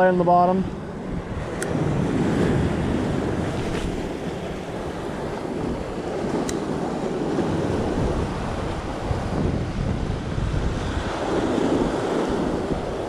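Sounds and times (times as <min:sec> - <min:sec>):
wind buffeting microphone: 0:00.0 - 0:13.0
surf breaking over rocks: 0:02.3 - 0:08.9.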